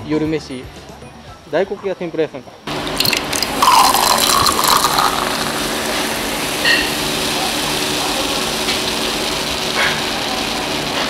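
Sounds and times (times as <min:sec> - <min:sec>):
broad background noise: 0:00.0 - 0:11.0
steady mechanical hum: 0:02.5 - 0:11.0.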